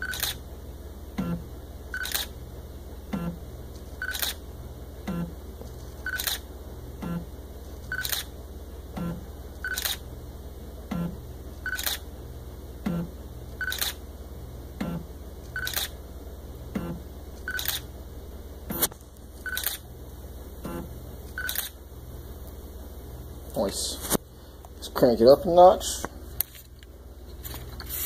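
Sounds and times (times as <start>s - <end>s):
steady low hum: 0.0s - 28.0s
camera shutter click: 2.0s - 2.3s, 4.1s - 4.4s, 6.1s - 6.4s, 7.9s - 8.3s, 9.7s - 10.0s, 15.6s - 15.9s, 17.5s - 17.8s, 19.5s - 19.8s, 21.4s - 21.8s.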